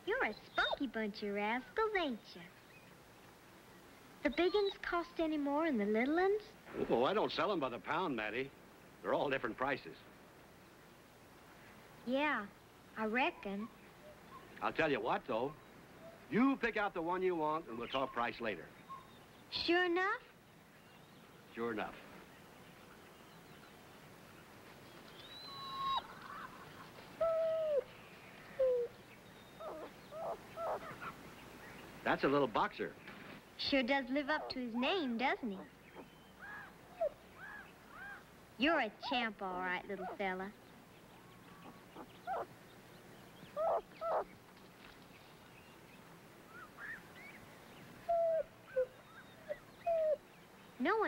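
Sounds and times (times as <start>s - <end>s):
puppy whining and whimpering: 25.3s - 26.1s, 27.2s - 27.9s, 28.6s - 28.9s, 29.6s - 31.1s, 36.0s - 38.2s, 41.6s - 42.5s, 43.6s - 44.3s, 48.1s - 50.2s.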